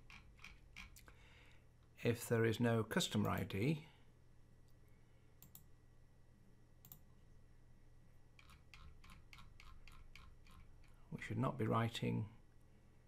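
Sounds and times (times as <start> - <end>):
computer mouse clicking: 0.0 - 1.1, 5.4 - 5.7, 6.8 - 7.0, 8.4 - 11.0.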